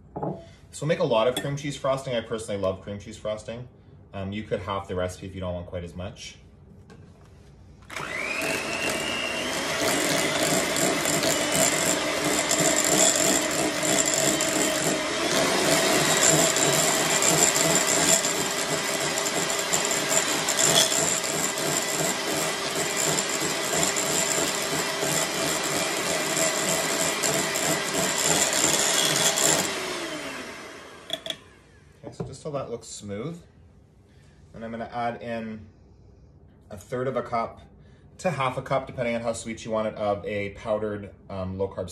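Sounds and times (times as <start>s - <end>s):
electric hand mixer motor: 7.9s - 31.8s.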